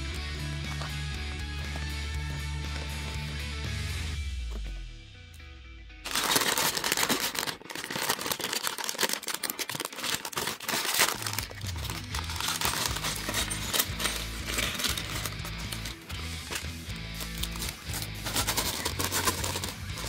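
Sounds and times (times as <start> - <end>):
background music with bass line: 0.0 - 6.2, 11.2 - 20.0
plastic bag crinkling: 6.1 - 20.0.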